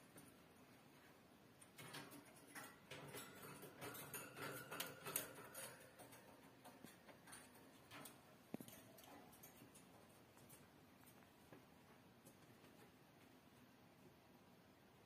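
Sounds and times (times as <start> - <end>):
bird clicking on wire cage: 1.6 - 10.6.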